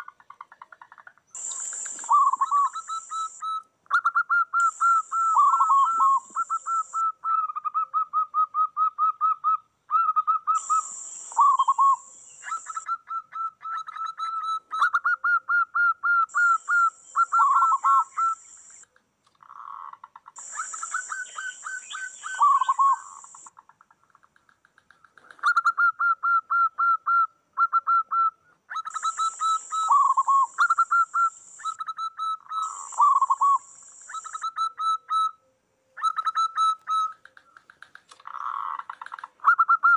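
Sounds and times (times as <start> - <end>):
high hiss: 1.4 - 3.4, 10.6 - 12.8
doves cooing: 4.6 - 7.0, 16.3 - 18.4, 19.4 - 23.5.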